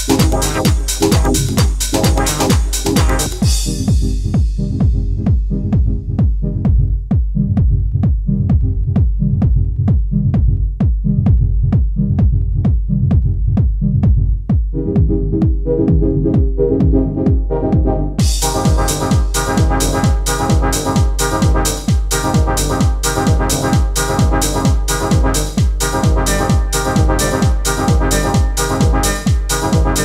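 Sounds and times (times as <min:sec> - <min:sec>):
electronic dance music: 0:00.0 - 0:06.8, 0:14.7 - 0:30.0.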